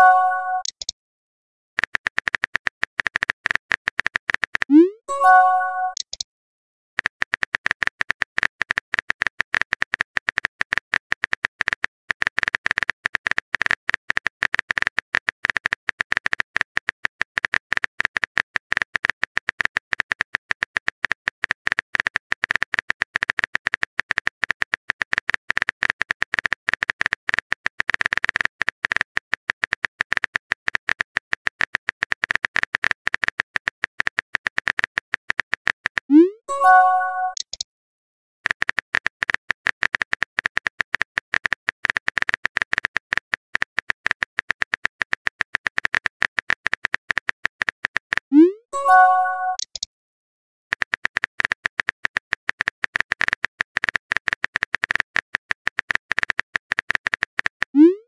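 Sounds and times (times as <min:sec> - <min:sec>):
keyboard typing clicks: 0:00.0 - 0:01.0, 0:01.8 - 0:06.2, 0:31.6 - 0:37.6, 0:38.4 - 0:49.9.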